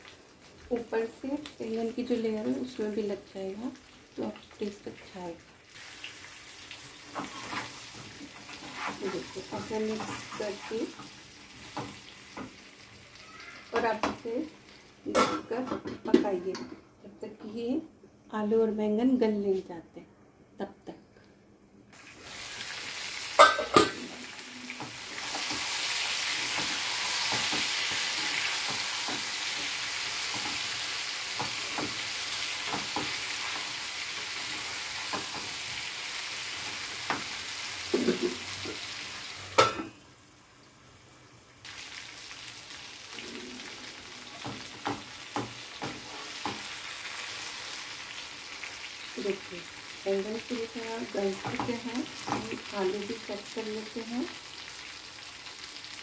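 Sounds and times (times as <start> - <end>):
oil sizzling in a pan: 0.0 - 15.6, 21.9 - 56.0.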